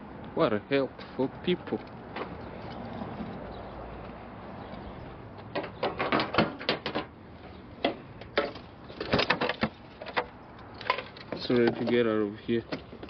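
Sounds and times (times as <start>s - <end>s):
things being handled inside: 7.8s - 13.0s.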